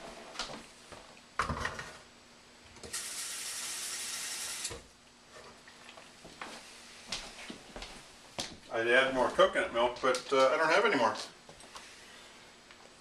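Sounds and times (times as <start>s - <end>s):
kitchen tap running: 2.9s - 4.9s.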